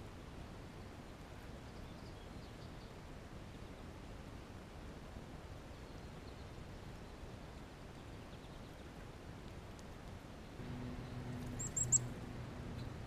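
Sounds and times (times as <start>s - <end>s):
low steady hum: 10.4s - 13.0s
small animal squeaky chirps: 11.5s - 12.2s.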